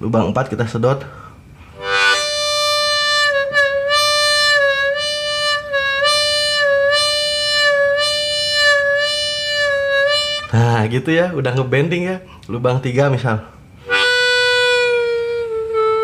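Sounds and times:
harmonica bent note: 1.7 - 10.8, 13.8 - 16.0.

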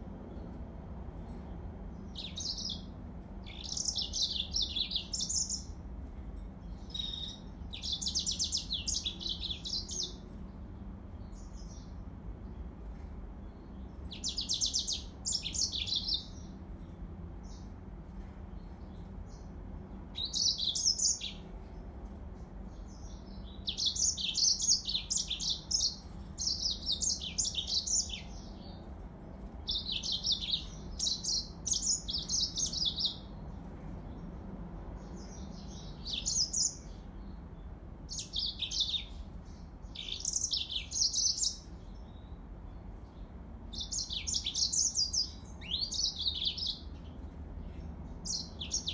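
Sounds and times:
faint low hum: 0.0 - 48.9
bird twittering song: 1.3 - 5.8, 6.4 - 34.4, 35.0 - 48.9.

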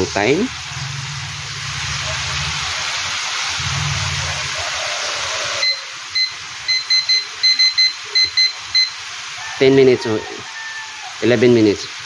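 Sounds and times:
chicken deep-frying in oil: 0.0 - 12.0
kitchen timer beeping: 5.6 - 9.0.

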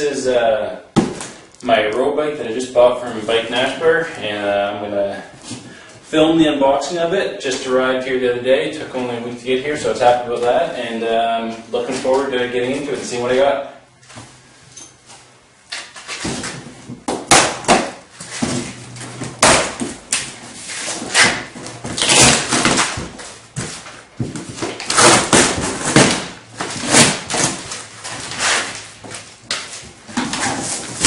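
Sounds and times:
cardboard scraping and rustling: 18.1 - 31.0.

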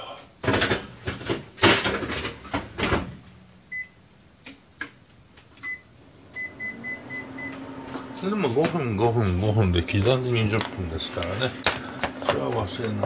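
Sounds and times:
appliance button beeps: 5.6 - 7.6.

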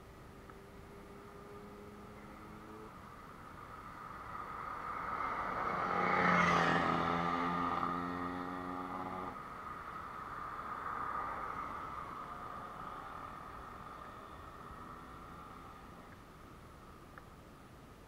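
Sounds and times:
vehicle engine passing by: 0.6 - 3.0, 4.5 - 9.4.

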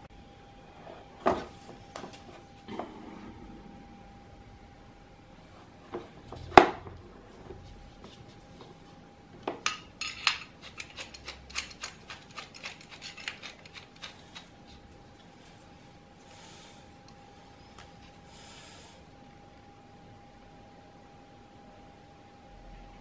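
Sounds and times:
chisel bits clicking and rattling: 9.7 - 14.5.

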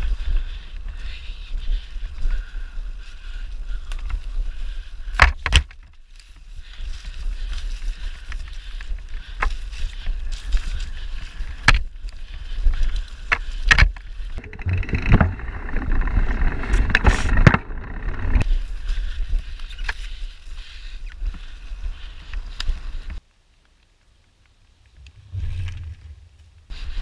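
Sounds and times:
wind and tyres rumbling: 0.0 - 23.3, 24.7 - 27.0
bike knocking and rattling: 5.0 - 6.4, 7.5 - 18.6.

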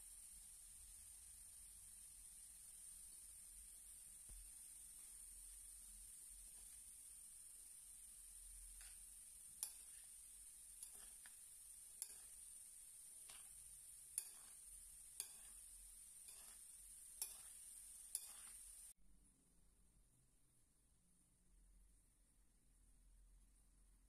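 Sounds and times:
faint steady hiss: 0.0 - 24.0
spoon clicking against bowl: 9.6 - 10.0, 10.8 - 11.4, 12.0 - 12.4, 13.2 - 14.6, 15.2 - 15.6, 16.2 - 16.6, 17.2 - 18.6.

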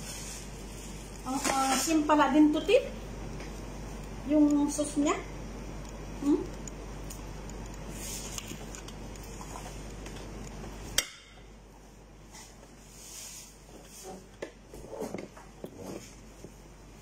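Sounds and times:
food rustling on metal tray: 0.0 - 2.4, 7.9 - 9.9
steady background hum: 0.0 - 17.0.

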